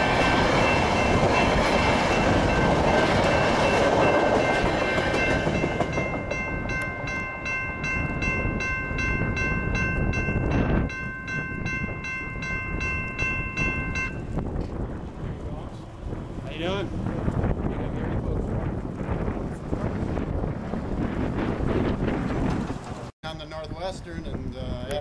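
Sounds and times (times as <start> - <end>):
crossing bell ringing: 0.0 - 14.4
train rumbling past: 0.0 - 24.4.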